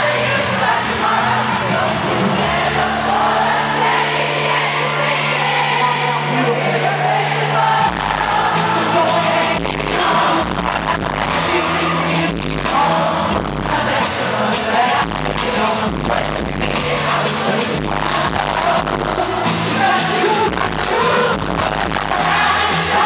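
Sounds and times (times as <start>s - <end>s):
live pop band: 0.0s - 23.0s
woman singing into a microphone: 4.2s - 23.0s
heavy bass and drum beat: 7.8s - 23.0s.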